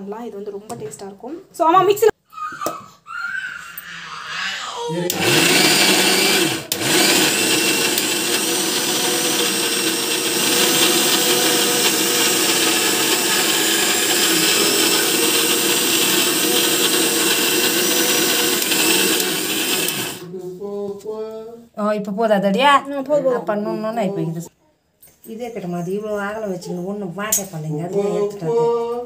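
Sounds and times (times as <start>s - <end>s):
electric mixer grinder running: 5.1s - 20.2s.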